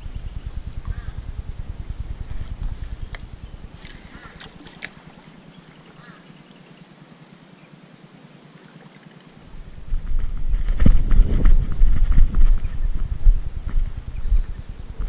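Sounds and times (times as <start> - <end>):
wind rumbling on microphone: 0.0 - 6.2, 9.4 - 15.0.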